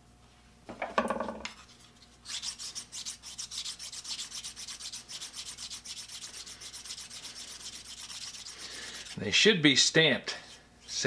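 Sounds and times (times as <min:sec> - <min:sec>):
abrasive bar rubbing steel: 0:01.6 - 0:09.2.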